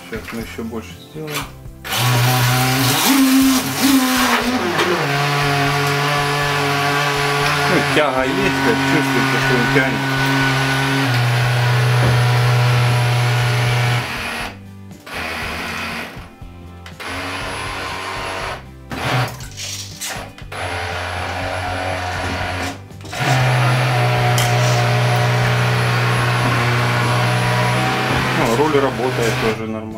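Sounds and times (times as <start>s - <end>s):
small electric propeller motor: 1.9s - 14.6s, 20.6s - 29.6s.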